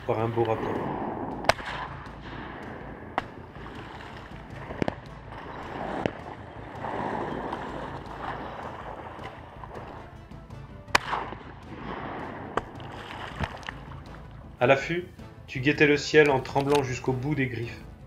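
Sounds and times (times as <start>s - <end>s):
background music: 0.0s - 18.0s
shotgun shots: 0.5s - 8.7s, 10.9s - 12.8s.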